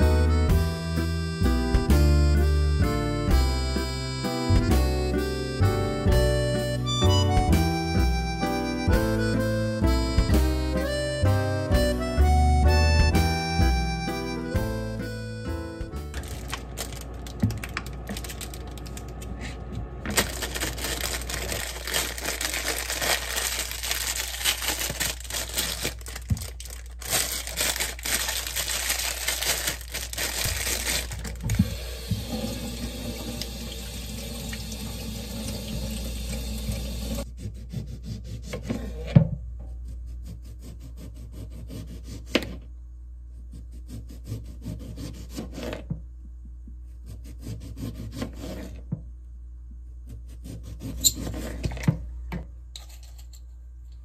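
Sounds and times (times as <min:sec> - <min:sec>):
plastic bag crinkling and tearing: 0:16.1 - 0:19.2, 0:20.1 - 0:31.6.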